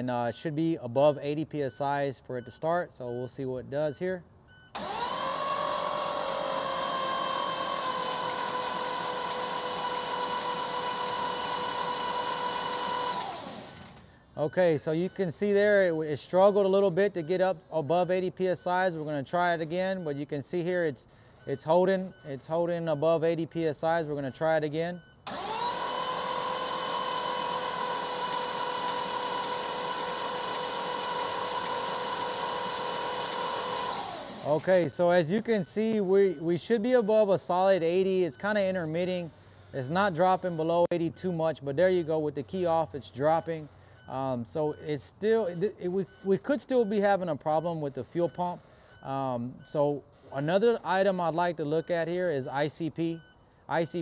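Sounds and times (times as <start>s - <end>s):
starter motor cranking diesel engine: 4.7s - 15.2s, 25.2s - 37.1s.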